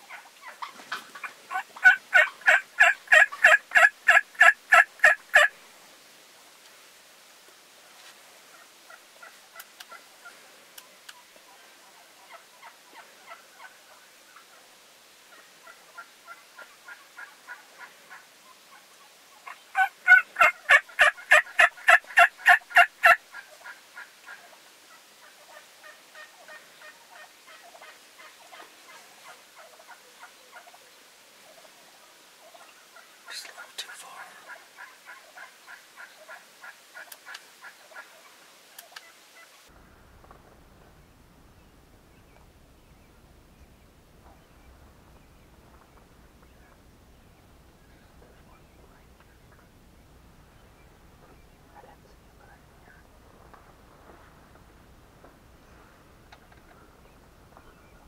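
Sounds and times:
faint turkey calls: 0.0 - 5.6, 8.5 - 40.4
turkey yelping: 0.1 - 5.5, 19.4 - 24.5.

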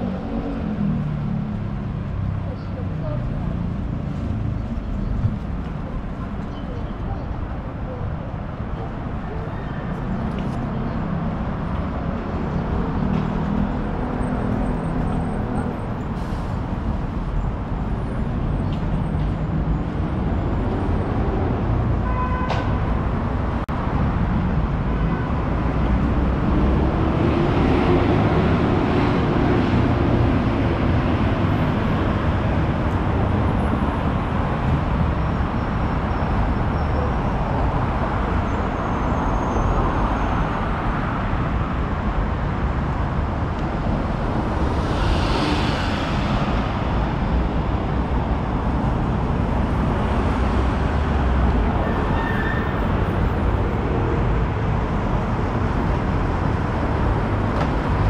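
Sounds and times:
traffic passing: 0.0 - 58.0
heavy vehicle passing: 43.1 - 51.8.

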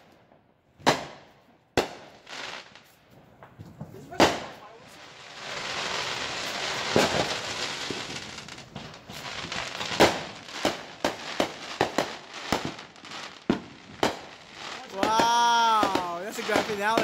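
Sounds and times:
firework bangs: 0.8 - 17.0
sharp crackling pops: 1.8 - 17.0
hiss of rising sparks: 4.9 - 10.1.

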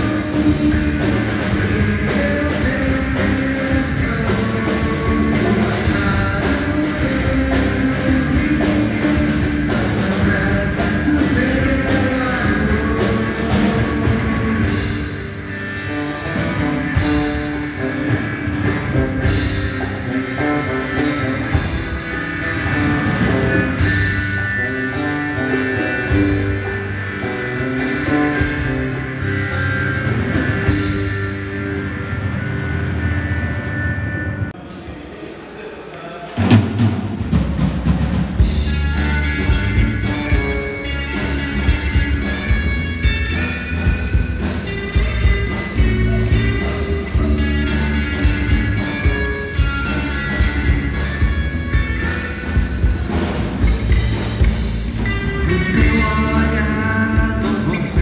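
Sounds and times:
live rock band playing: 0.0 - 35.6, 36.2 - 58.0.

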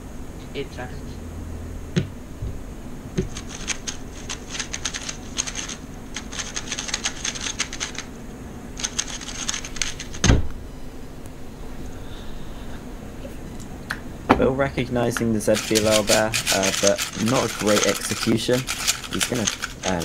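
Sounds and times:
fast plastic cube clicks: 3.2 - 8.1, 8.8 - 10.2, 15.6 - 20.0.

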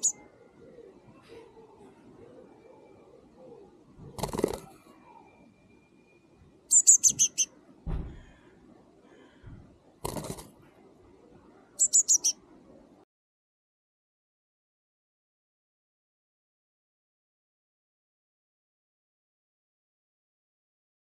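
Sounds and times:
bird chirping: 0.0 - 1.2, 2.4 - 7.6, 11.7 - 12.4.

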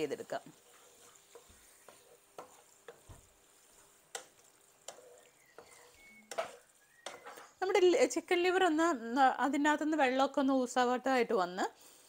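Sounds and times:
spatula scraping a frying pan: 0.1 - 7.6.

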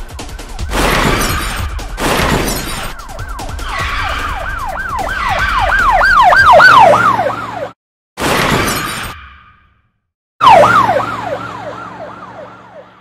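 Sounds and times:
police siren yelps: 2.9 - 7.8, 10.4 - 13.0.

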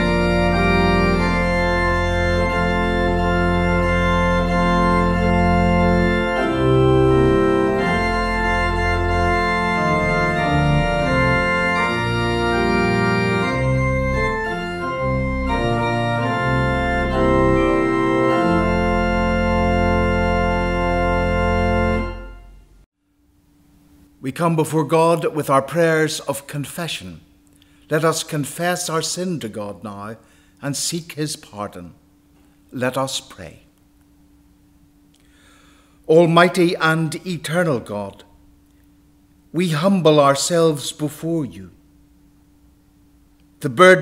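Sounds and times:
deep bass line: 0.0 - 22.6
organ playing sustained chords: 0.0 - 22.9, 27.7 - 44.0.

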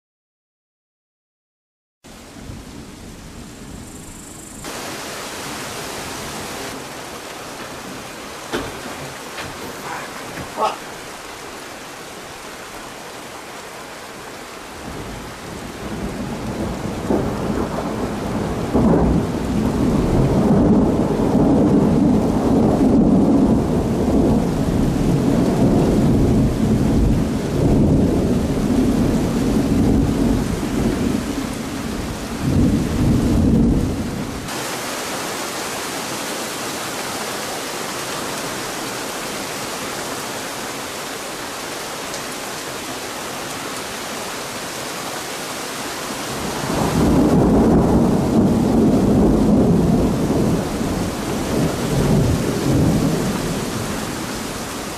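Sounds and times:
heavy rain: 2.1 - 54.9
thunder rumbling and cracking: 14.8 - 34.5, 46.3 - 54.6.

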